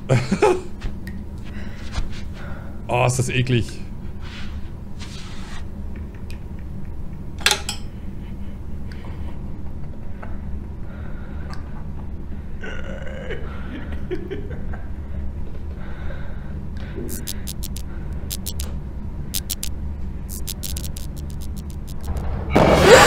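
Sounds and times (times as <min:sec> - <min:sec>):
sharp click: 0:17.1 - 0:18.7, 0:19.4 - 0:19.7, 0:20.3 - 0:22.2.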